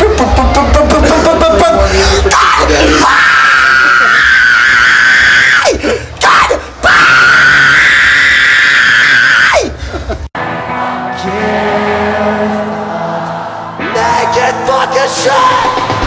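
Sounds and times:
man screaming: 0:01.1 - 0:09.8
live rock band playing: 0:10.4 - 0:16.0.

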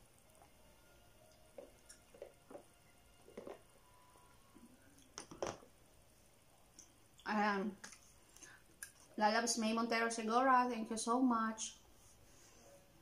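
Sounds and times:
plastic cup handling: 0:05.1 - 0:05.6.

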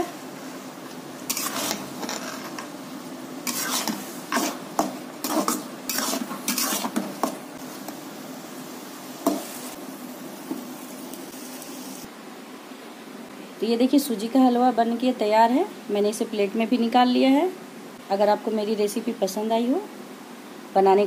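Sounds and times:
oil sizzling: 0:00.0 - 0:12.1
metal spatula scraping pan: 0:01.3 - 0:02.6, 0:03.4 - 0:07.4.

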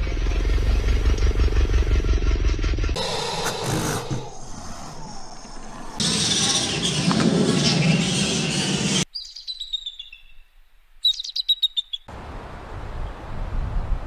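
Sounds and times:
eagle whistled calls: 0:06.2 - 0:10.4, 0:11.0 - 0:12.1.

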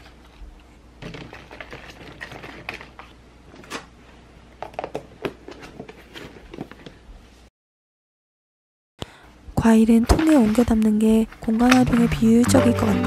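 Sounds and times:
plastic containers clicking: 0:10.0 - 0:13.0.

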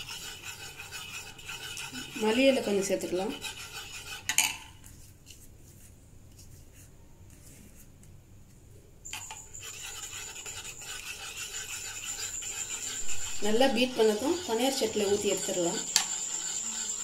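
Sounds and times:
spoon beating batter: 0:00.0 - 0:05.0, 0:09.1 - 0:17.0.

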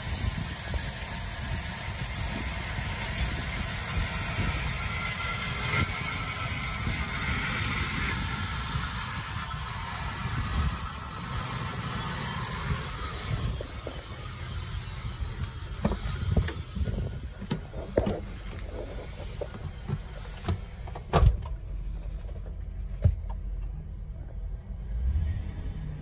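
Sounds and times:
van engine idling: 0:00.0 - 0:24.9
loud thump: 0:15.8 - 0:16.6, 0:19.6 - 0:21.5
clunks and knocks in cab: 0:15.8 - 0:21.6, 0:22.4 - 0:23.4.

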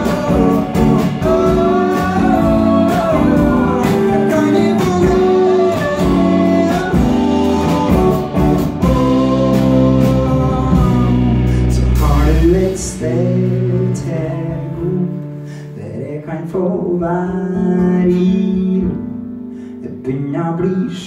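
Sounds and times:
live band playing: 0:00.0 - 0:15.5
man singing: 0:00.0 - 0:21.0.

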